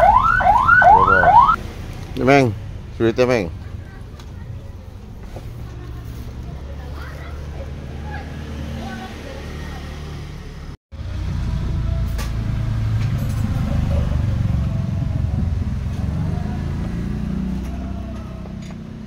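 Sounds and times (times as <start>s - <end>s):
motorcycle engine running: 7.3s - 19.0s.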